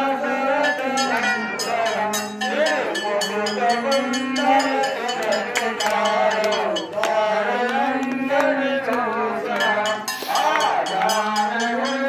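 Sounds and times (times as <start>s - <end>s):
group singing a hymn: 0.0s - 12.0s
small metal hand bell ringing: 0.6s - 7.1s, 9.5s - 12.0s.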